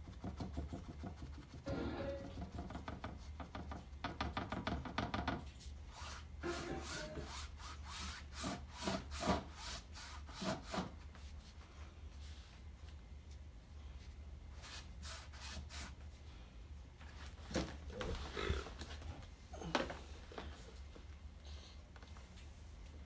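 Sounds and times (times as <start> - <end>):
paint strokes scraping on canvas: 5.6 - 12.6.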